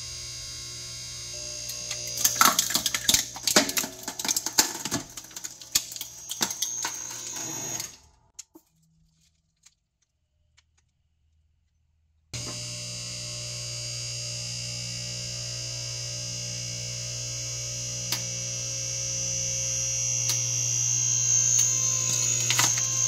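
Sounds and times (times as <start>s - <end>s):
steady hum: 0.0s - 8.0s, 12.4s - 23.0s
plastic housing cracking and crunching: 1.8s - 7.1s, 22.1s - 23.0s.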